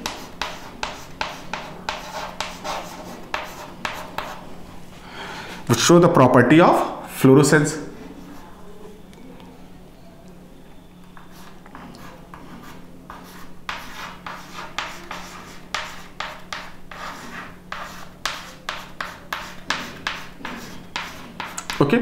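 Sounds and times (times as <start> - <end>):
chalk scratching on chalkboard: 0.0 - 4.5, 11.2 - 21.9.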